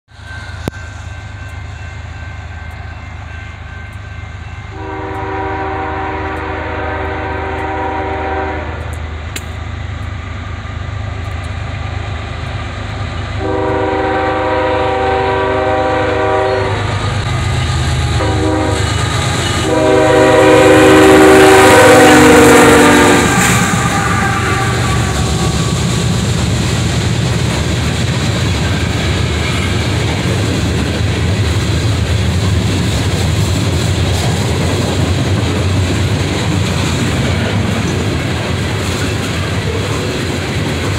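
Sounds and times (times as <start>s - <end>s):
train wheels on rails: 0.1s - 40.9s
locomotive horn chord: 4.0s - 9.0s, 13.4s - 17.0s, 18.1s - 25.8s.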